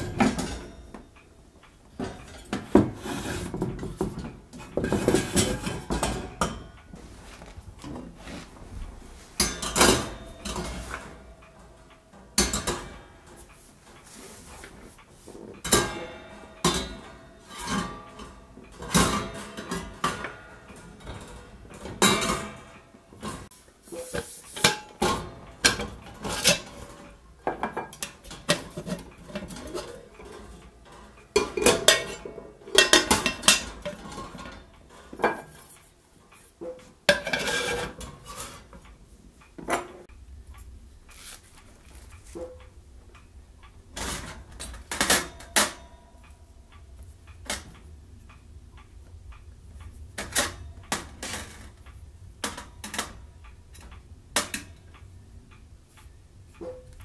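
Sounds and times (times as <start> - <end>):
metal cookware clanking: 0.0 - 1.1, 2.0 - 6.8, 9.4 - 13.0, 15.6 - 35.8, 36.6 - 38.8.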